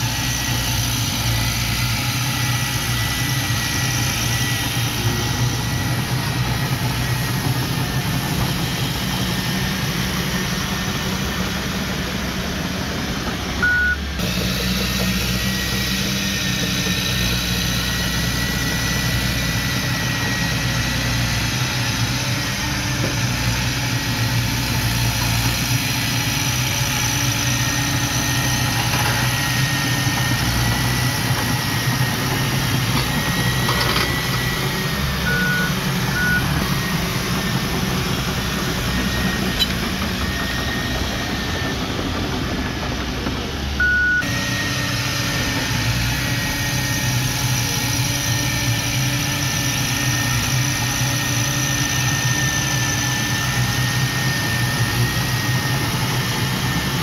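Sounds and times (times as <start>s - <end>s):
bulldozer diesel engine running: 0.0s - 57.0s
short high beeps: 13.6s - 14.1s, 35.3s - 36.6s.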